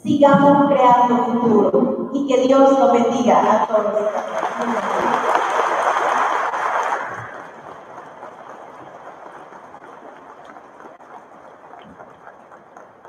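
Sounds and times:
audience applause: 3.9s - 13.0s
low crowd rustle: 4.3s - 13.0s.

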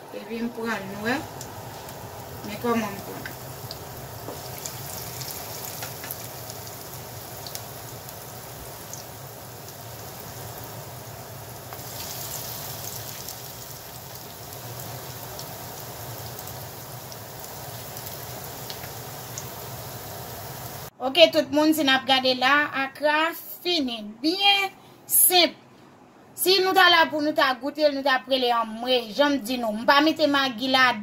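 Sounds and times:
oil sizzling and crackling: 0.0s - 20.9s.

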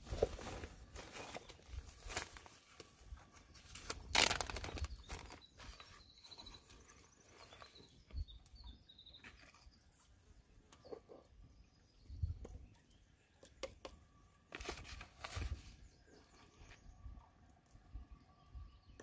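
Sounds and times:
faint bird chirps: 3.5s - 13.8s
plastic bag crinkling: 3.8s - 5.4s.

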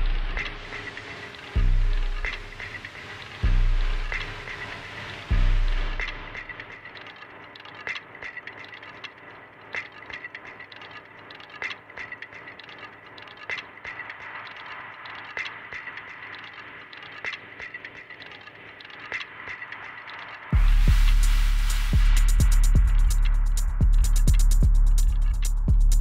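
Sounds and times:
techno kick drum and beat: 0.0s - 8.9s, 19.1s - 26.0s
ticking percussion: 0.0s - 26.0s.

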